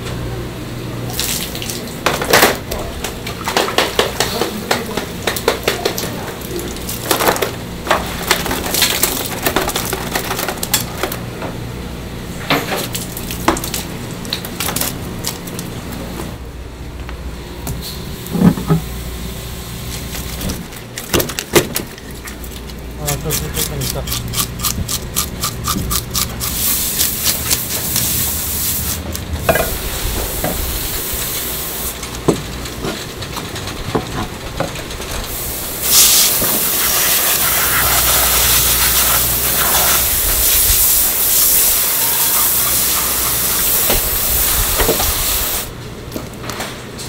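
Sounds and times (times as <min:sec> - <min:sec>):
fish scaler scraping scales: 0:23.1 - 0:28.1
water spray gun hissing: 0:26.4 - 0:32.0, 0:35.3 - 0:45.7.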